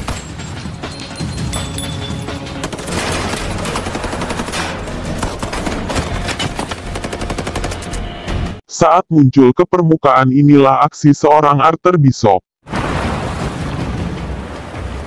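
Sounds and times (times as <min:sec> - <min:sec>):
machine guns firing in bursts: 0:02.5 - 0:08.1.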